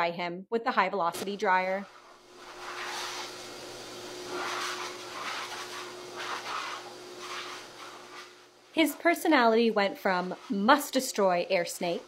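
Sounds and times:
pet dryer blowing air: 1.9 - 9.5.

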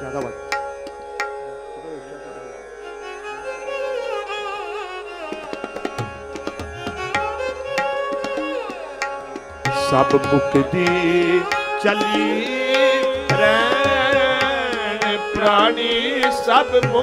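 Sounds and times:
tabla rhythm: 0.0 - 1.6, 5.2 - 17.0
bowed strings wavering melody: 0.0 - 17.0.

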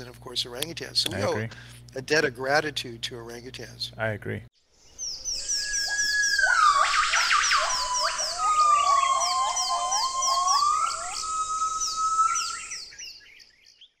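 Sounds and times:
lower chirps: 4.6 - 14.0
rapid high chirps: 5.2 - 12.8
gliding whistle-like tone: 5.3 - 12.8.

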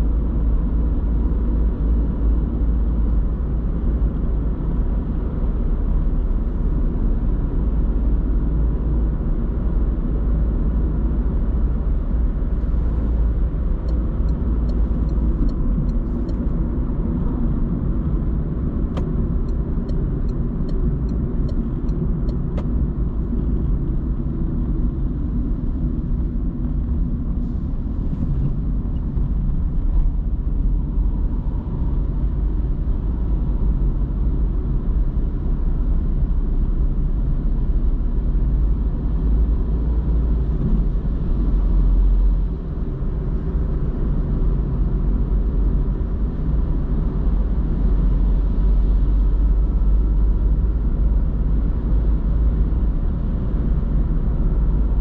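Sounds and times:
car tyres and engine rumble: 0.0 - 55.0
light ticks: 13.8 - 16.4, 18.9 - 22.7.

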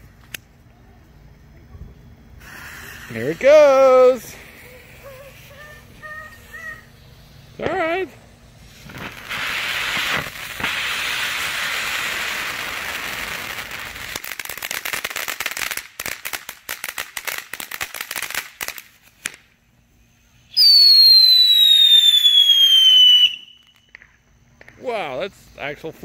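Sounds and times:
firework crackling pops: 0.0 - 0.6, 1.9 - 19.7, 20.5 - 25.2
firework fountain hissing: 0.0 - 26.0
firework whistle falling in pitch: 20.5 - 24.0.

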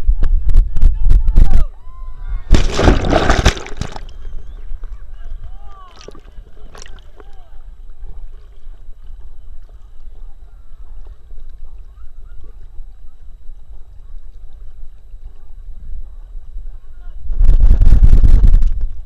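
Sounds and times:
loud rush of splashing water: 2.5 - 4.1
water sloshing and lapping: 2.5 - 4.2, 5.7 - 7.3.

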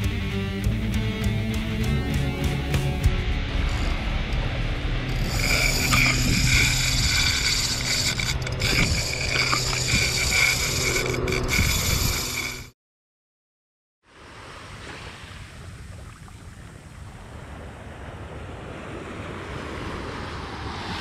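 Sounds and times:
pulsing high whine: 2.1 - 12.7
fishing reel whirring: 5.1 - 12.7.

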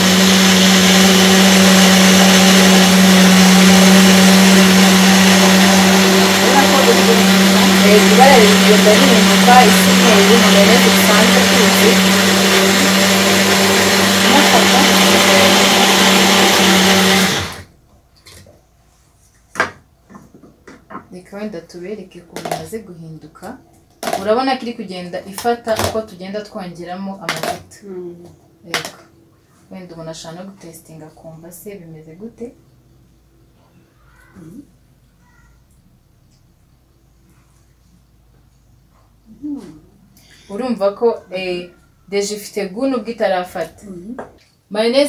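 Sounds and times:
blender motor whirring: 0.0 - 17.7.

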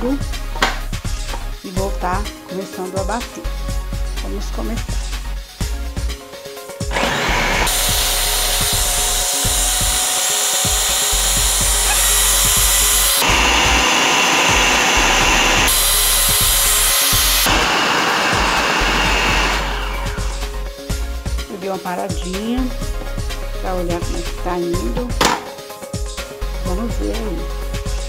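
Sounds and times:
food processor motor chopping: 6.9 - 20.5.

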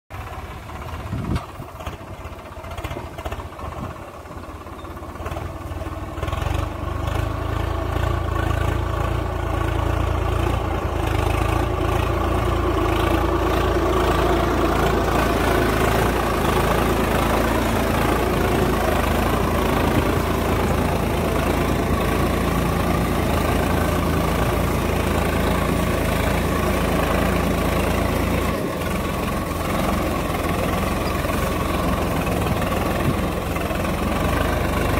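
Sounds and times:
tractor diesel engine under load: 0.1 - 34.9.

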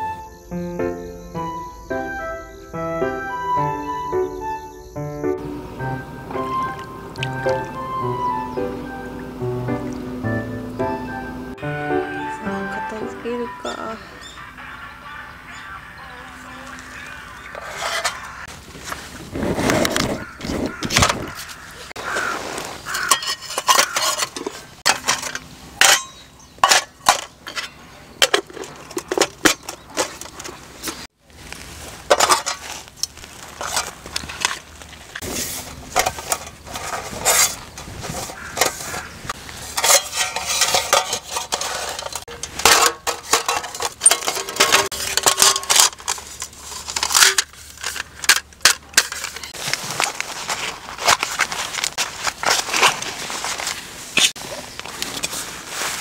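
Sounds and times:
metal cookware clinking: 22.9 - 30.6, 39.6 - 49.5.

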